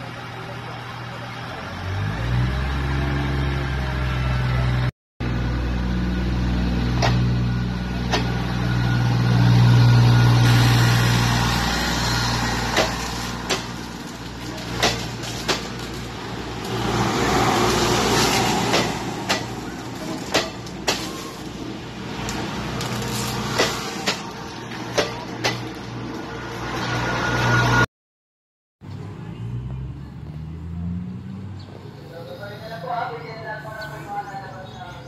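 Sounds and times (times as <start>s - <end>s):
diesel train engine drone: 0.0s - 27.8s
train wheels clicking on rail joints: 12.6s - 16.0s, 18.2s - 21.1s.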